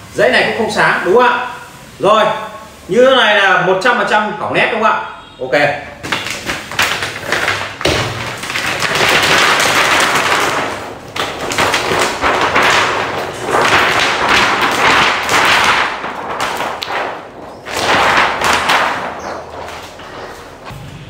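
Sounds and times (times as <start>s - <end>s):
handling noise rustling and crackling: 6.0s - 20.7s.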